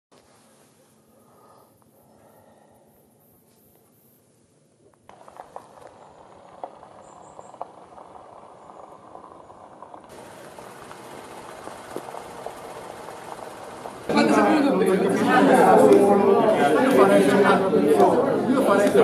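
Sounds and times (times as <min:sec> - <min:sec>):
steady low hiss: 0:00.2 - 0:15.0.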